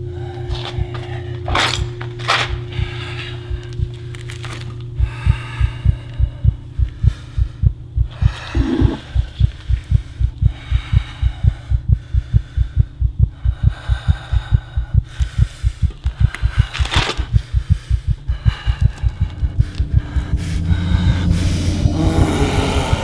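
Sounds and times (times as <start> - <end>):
low drone: 0.0 - 23.0
fast heartbeat: 0.1 - 1.5, 2.5 - 23.0.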